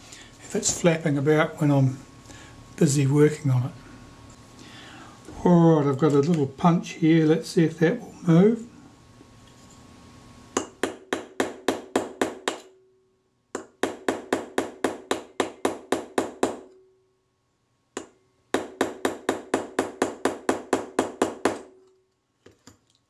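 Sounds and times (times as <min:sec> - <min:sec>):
hammer tapping metal punch: 0:10.6 - 0:12.9, 0:13.5 - 0:16.9, 0:18.0 - 0:22.0.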